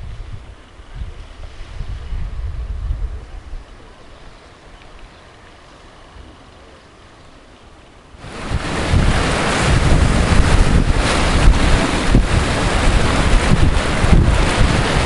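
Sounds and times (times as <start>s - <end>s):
wind buffeting microphone: 0.0s - 5.4s, 8.2s - 15.0s
faint hiss: 0.0s - 15.0s
sea waves breaking on rocks: 8.1s - 15.0s.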